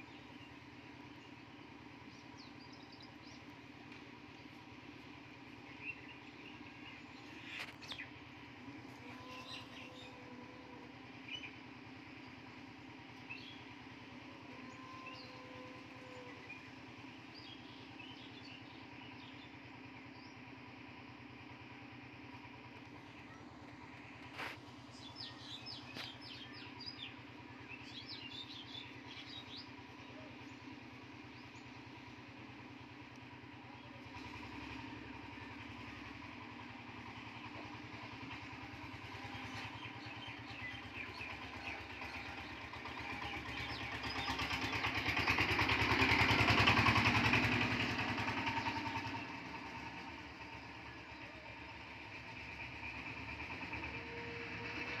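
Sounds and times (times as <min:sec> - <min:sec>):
vehicle engine passing by: 0:33.9 - 0:55.0.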